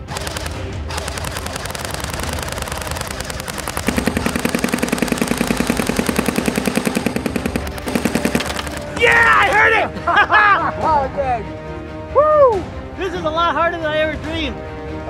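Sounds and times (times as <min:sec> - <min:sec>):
airsoft guns firing full auto: 0:00.0 - 0:09.7.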